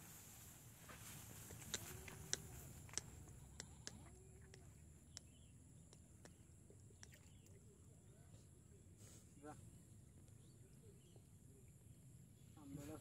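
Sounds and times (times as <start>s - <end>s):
soft animal calls: 1.4s - 4.7s
sharp clicks: 1.5s - 7.6s.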